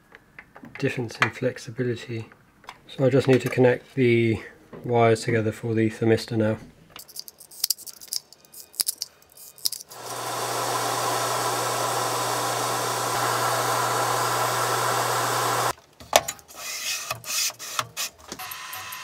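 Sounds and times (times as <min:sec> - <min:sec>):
small handling clicks and knocks: 0:06.9 - 0:09.9
heat gun blowing air: 0:09.9 - 0:15.8.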